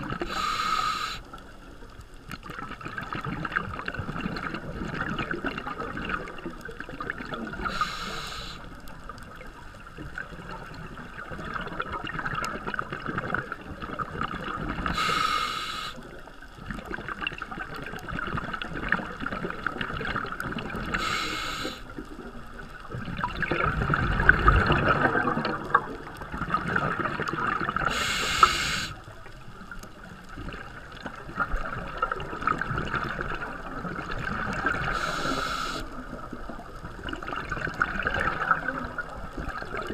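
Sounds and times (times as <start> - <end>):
regulator hissing inhalation: 0.2 - 1.3, 7.6 - 8.7, 15.0 - 16.0, 21.0 - 21.9, 27.9 - 29.0, 34.9 - 35.9
bubbling exhalations underwater: 16.6 - 29.0, 30.4 - 39.9.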